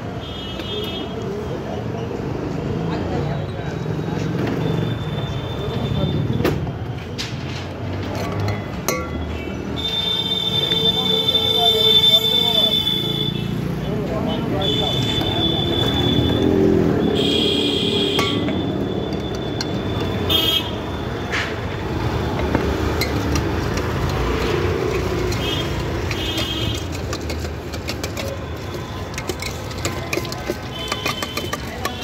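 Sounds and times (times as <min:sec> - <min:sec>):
street traffic noise: 0:00.0 - 0:32.0
vehicle horn toots: 0:14.5 - 0:20.9, 0:25.2 - 0:26.9, 0:30.6 - 0:32.0
spoon scraping metal bowl: 0:14.7 - 0:20.8, 0:21.9 - 0:32.0.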